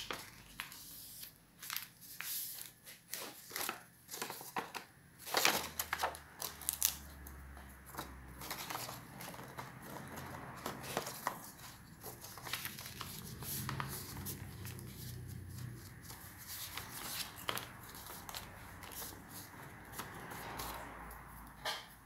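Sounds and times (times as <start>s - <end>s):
paper rustling and crinkling: 0.0s - 7.0s, 7.8s - 21.1s.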